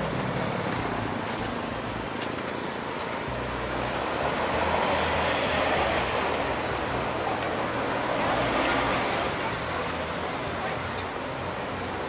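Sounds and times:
city traffic noise: 0.0s - 12.0s
faint high ringing tones: 2.9s - 3.9s.

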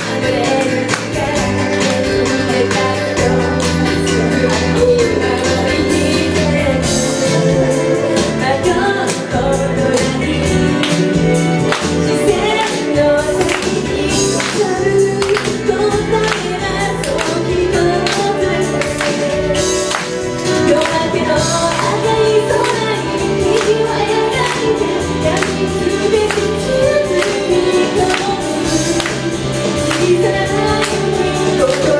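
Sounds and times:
loud amplified music with beat: 0.0s - 31.9s
woman singing into microphone: 0.0s - 31.9s.

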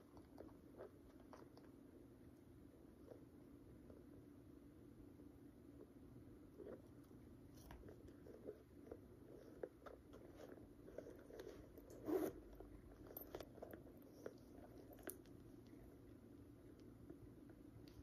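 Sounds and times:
handbag rustling: 10.1s - 15.2s.

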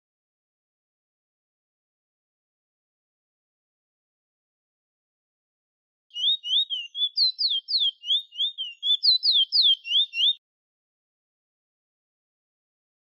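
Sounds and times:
finch singing whistled song: 6.1s - 10.4s.

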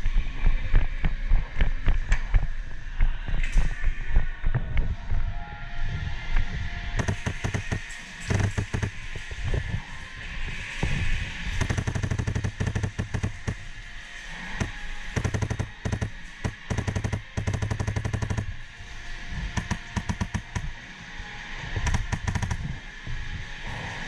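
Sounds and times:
airsoft rifle firing rapid shots: 7.0s - 9.0s, 11.6s - 13.6s, 14.6s - 18.5s, 19.6s - 20.7s, 21.9s - 22.6s.

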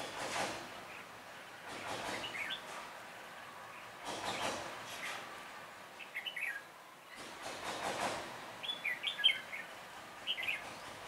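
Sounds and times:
birds warbling: 8.6s - 10.7s.

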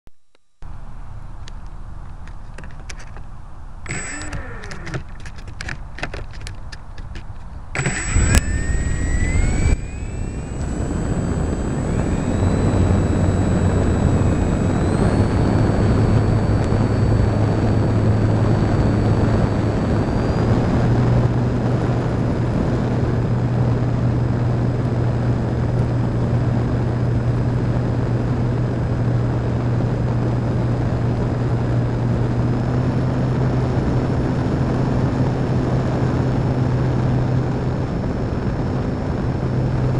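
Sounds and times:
electric motor and propeller whine: 0.7s - 39.9s
rushing air noise: 7.6s - 23.5s.

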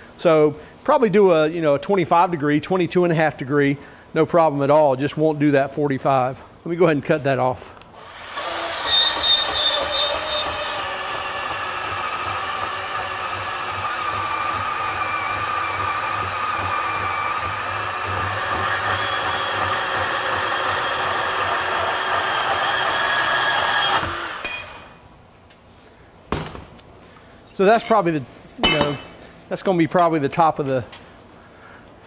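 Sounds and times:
band saw cutting steel: 8.0s - 25.0s.

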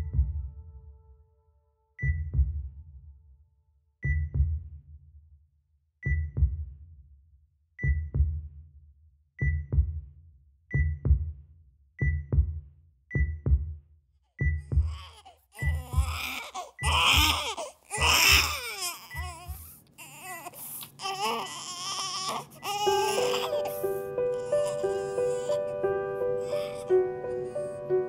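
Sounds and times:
heartbeat double thump: 10.7s - 11.3s, 12.0s - 13.8s, 14.4s - 15.0s, 15.6s - 17.5s.

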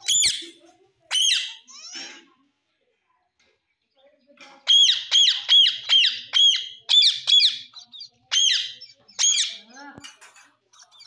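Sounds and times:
parakeet screeching: 1.1s - 2.0s, 4.7s - 9.7s.

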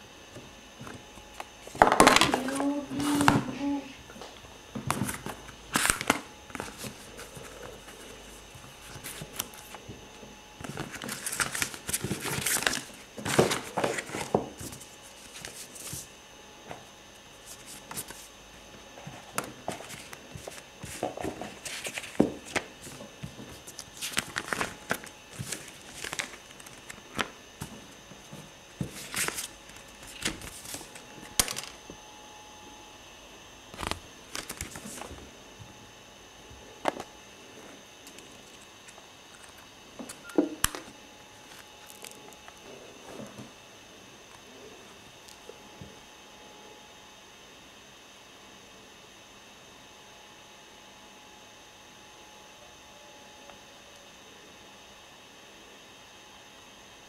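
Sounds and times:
paper rustling and crinkling: 4.8s - 10.0s, 10.6s - 16.1s, 17.4s - 18.3s, 19.0s - 31.8s, 33.7s - 35.3s, 41.4s - 43.4s.

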